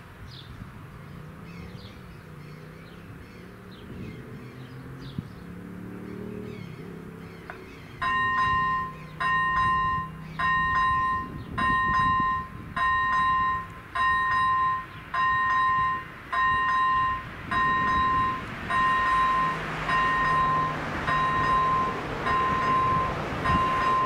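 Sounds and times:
level crossing warning bell beeping: 7.5 - 24.0.

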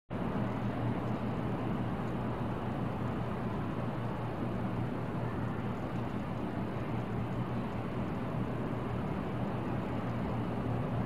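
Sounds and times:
low ambient rumble: 0.1 - 11.0.

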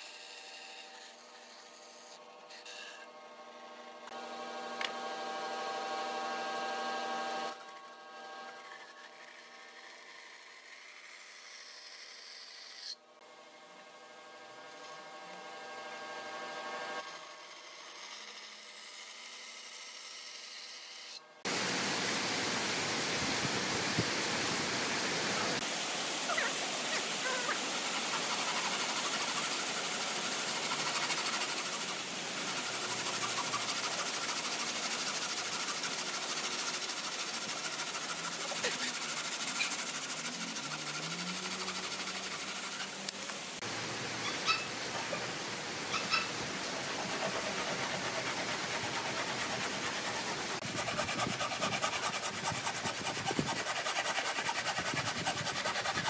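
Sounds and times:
band saw motor humming: 1.0 - 9.2, 26.4 - 56.0
hand saw rasping through wood: 8.4 - 11.1, 27.0 - 43.7, 45.9 - 56.0.

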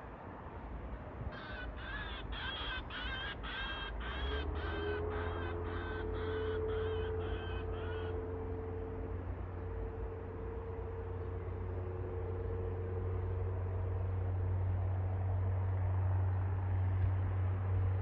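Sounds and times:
distant aircraft engine drone: 0.0 - 18.0
crow cawing: 1.3 - 8.4.

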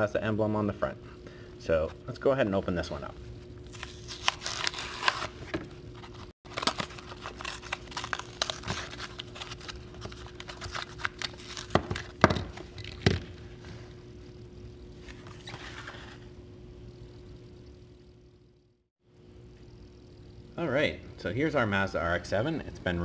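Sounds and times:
faint steady hum: 0.0 - 23.0
cardboard and plastic tearing: 3.7 - 13.2.

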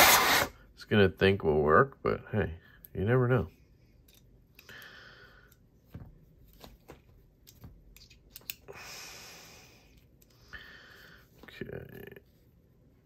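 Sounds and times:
small screwdrivers clicking and tapping: 7.4 - 8.6.

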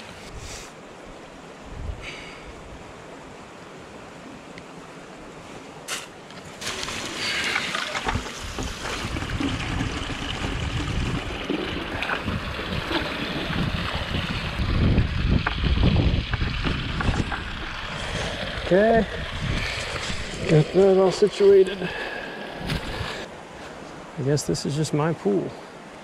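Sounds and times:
stream water running: 0.0 - 26.0
wind noise on microphone: 1.7 - 2.8, 8.0 - 20.8, 22.6 - 23.3.

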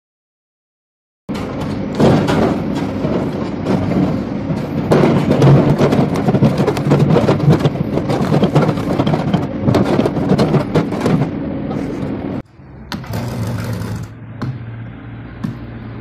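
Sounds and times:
wood crackles and knocks: 1.3 - 11.4
excavator engine humming: 1.3 - 16.0
bucket scraping and crunching log: 2.6 - 11.3, 13.0 - 14.2.

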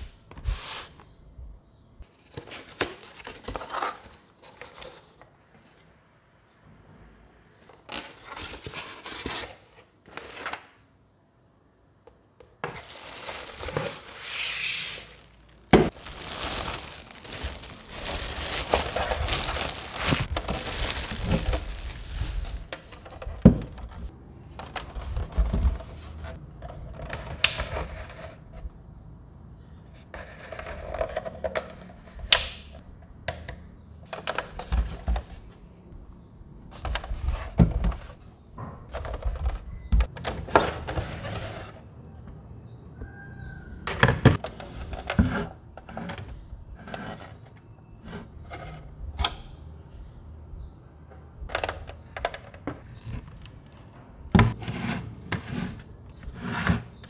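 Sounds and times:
rustling and scraping: 0.0 - 1.2, 7.8 - 10.6, 12.7 - 28.7, 34.1 - 35.8, 36.7 - 41.9, 44.4 - 49.0, 51.5 - 57.0
cardboard box handling: 12.8 - 23.2.

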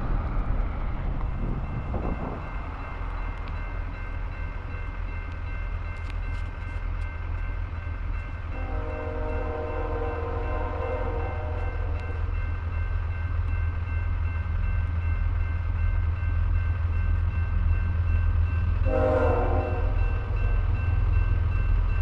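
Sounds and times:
diesel locomotive engine rumble: 0.0 - 22.0
multi-note train horn blast: 8.5 - 12.3, 18.8 - 20.8.

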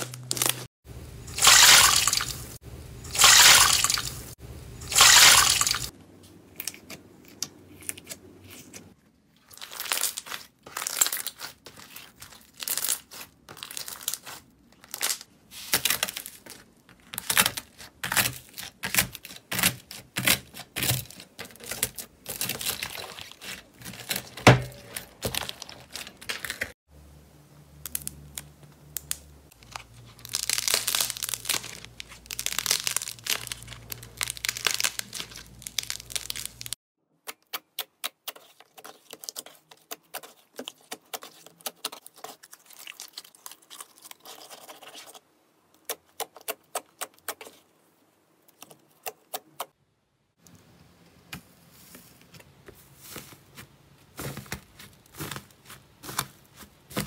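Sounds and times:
slime crackling and crinkling: 0.0 - 0.7, 4.9 - 26.8, 27.8 - 36.8, 38.1 - 47.7, 51.8 - 57.0.

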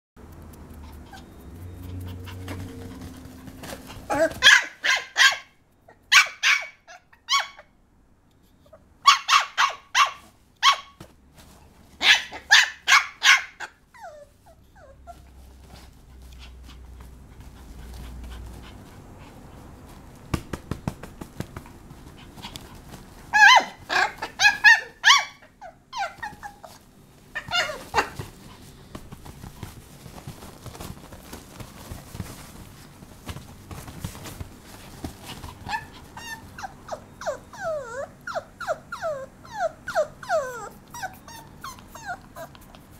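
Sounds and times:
puppy yipping: 0.8 - 7.7, 8.7 - 11.1, 12.0 - 15.4, 23.3 - 28.5, 35.3 - 42.9.

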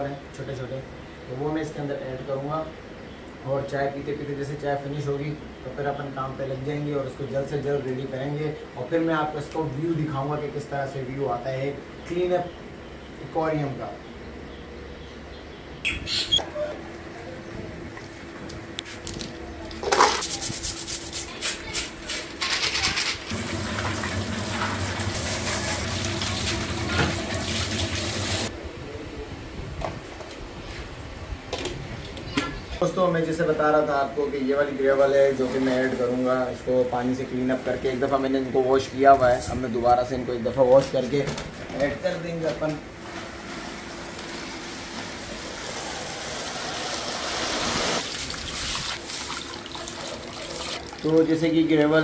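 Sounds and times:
water splashing into plastic bucket: 47.7 - 51.4.

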